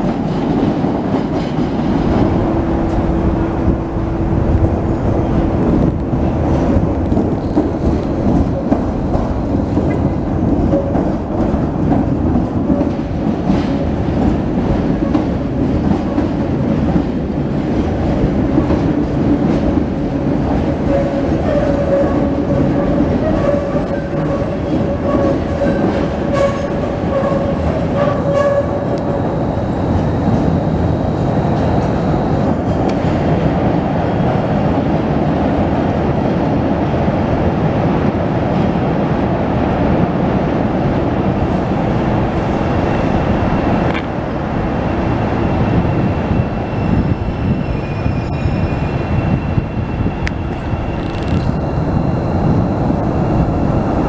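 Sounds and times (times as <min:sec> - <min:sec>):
train wheels on rails: 0:00.0 - 0:54.0.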